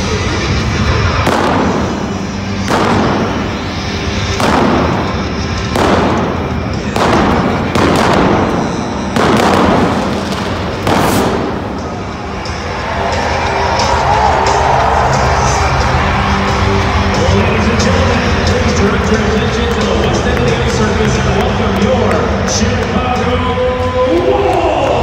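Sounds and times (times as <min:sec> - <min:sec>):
arena music: 0:00.0 - 0:25.0
flame cannon blasts: 0:01.2 - 0:12.3.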